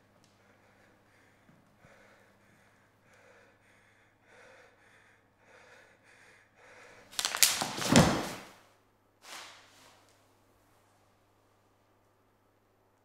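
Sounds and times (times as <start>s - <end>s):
faint hum: 0.0s - 7.2s, 10.0s - 13.0s
quick quiet breaths: 0.3s - 7.2s
footsteps on wooden floor: 7.5s - 8.5s.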